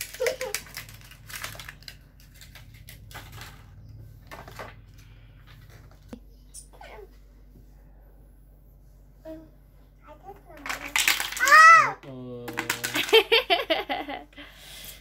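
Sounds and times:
plastic pieces clicking: 0:00.0 - 0:03.7, 0:10.6 - 0:11.6, 0:12.5 - 0:13.3
packaging rustling: 0:00.0 - 0:04.8.

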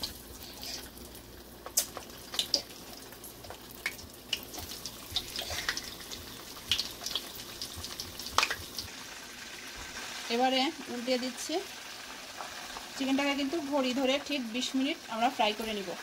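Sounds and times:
oil crackles and pops: 0:00.0 - 0:10.3
chicken deep-frying sizzle: 0:00.0 - 0:16.0.

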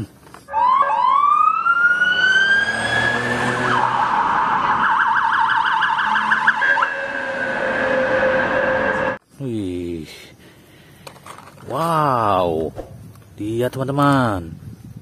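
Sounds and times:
police car siren: 0:00.5 - 0:09.2.

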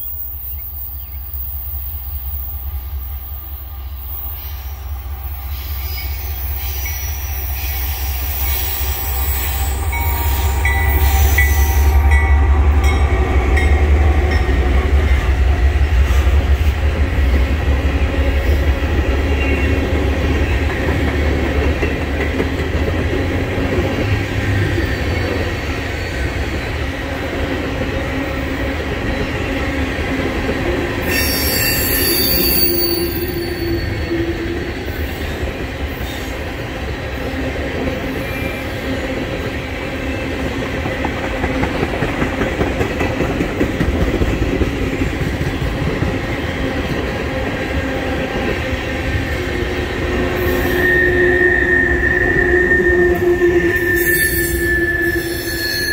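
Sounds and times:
train wheels squealing: 0:00.0 - 0:13.0, 0:23.8 - 0:26.9, 0:31.0 - 0:36.5, 0:38.0 - 0:39.2, 0:50.3 - 0:55.9
diesel locomotive low rumble: 0:00.0 - 0:31.1
train cars rolling on rails: 0:00.0 - 0:55.9.

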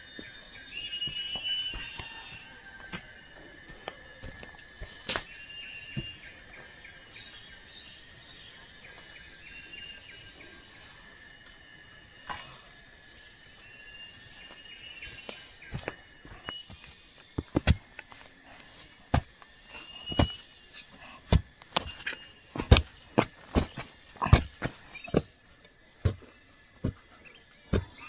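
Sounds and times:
bird chirps: 0:00.0 - 0:11.1, 0:11.9 - 0:18.0, 0:19.6 - 0:21.2, 0:21.8 - 0:25.4, 0:26.0 - 0:28.0
insect drone: 0:00.0 - 0:28.0.

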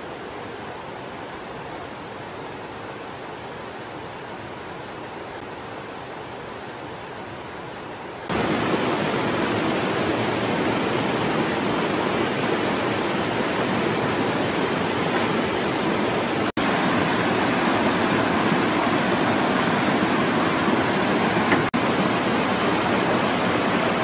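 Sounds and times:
waterfall and stream rushing: 0:00.0 - 0:24.0.

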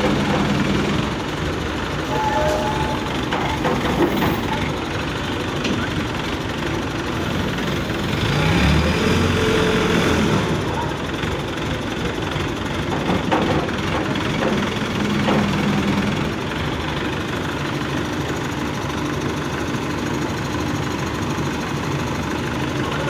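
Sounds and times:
diesel engine running: 0:00.0 - 0:23.0.

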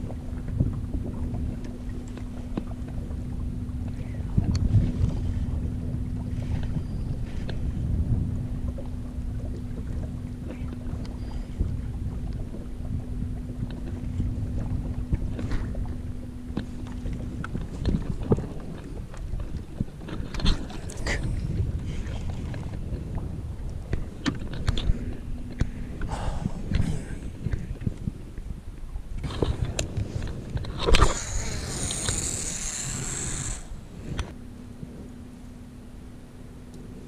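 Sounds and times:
wind buffeting microphone: 0:00.0 - 0:35.2
steady low hum: 0:00.0 - 0:37.0
fishing rod and reel clicks: 0:29.4 - 0:34.3.

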